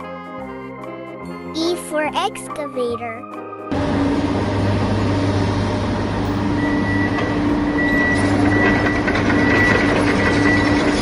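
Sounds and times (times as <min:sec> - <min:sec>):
excavator engine rattling rumble: 0:03.7 - 0:11.0
reversing alarm beeps: 0:06.4 - 0:11.0.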